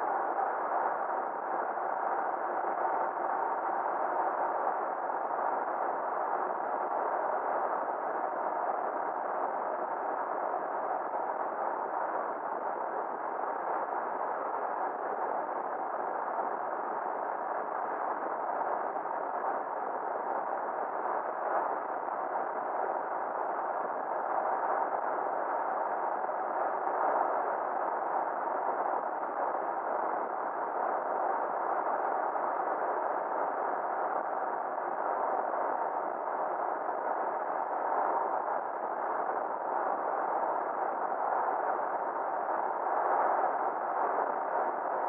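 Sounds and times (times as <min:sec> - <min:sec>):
muffled road and wind noise: 0:00.0 - 0:45.0.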